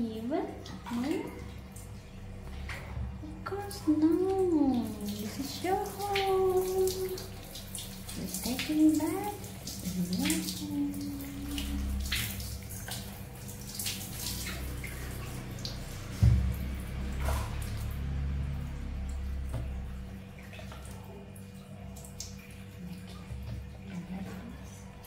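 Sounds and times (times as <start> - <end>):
water splashing and dripping: 0.0 - 25.0
loud low thump: 16.2 - 16.7.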